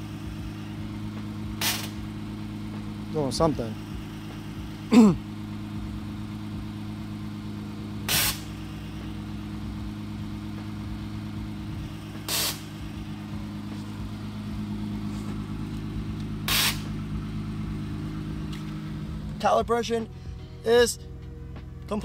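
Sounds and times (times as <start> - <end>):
short air hisses: 1.6 - 2.0, 8.1 - 8.5, 12.3 - 12.7, 16.5 - 16.9.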